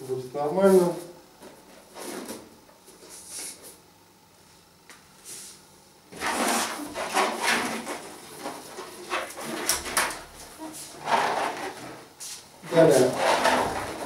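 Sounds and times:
balloon rubbing and squeaking: 0:06.2 - 0:09.6.

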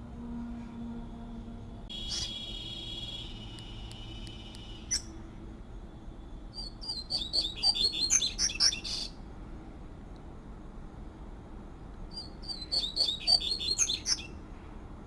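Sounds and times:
bird singing whistled song: 0:06.5 - 0:09.2, 0:12.1 - 0:14.4.

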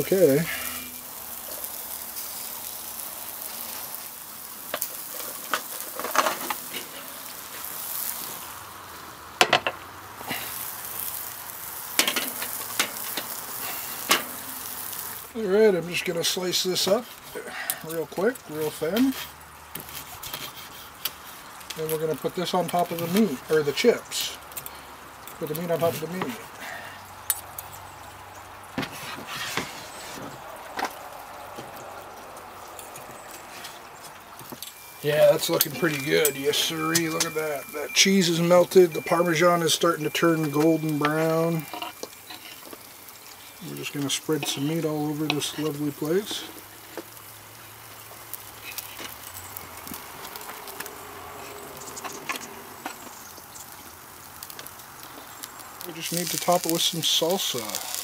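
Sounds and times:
faint steady buzz: 0:00.0 - 0:15.7
food sizzling in metal pan: 0:00.0 - 0:58.0.

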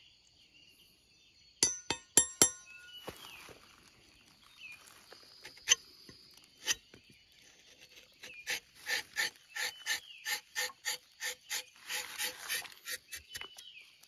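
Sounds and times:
knife shaving tree bark: 0:05.2 - 0:14.0.

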